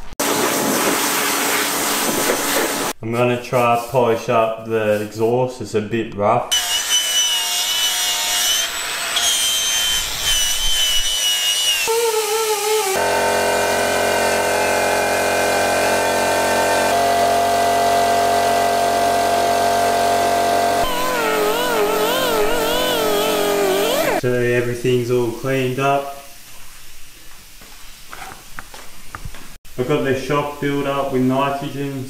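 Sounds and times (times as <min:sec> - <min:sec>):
angle grinder polishing metal: 0:06.5 - 0:16.9, 0:20.7 - 0:24.2
die grinder whine: 0:06.5 - 0:24.2.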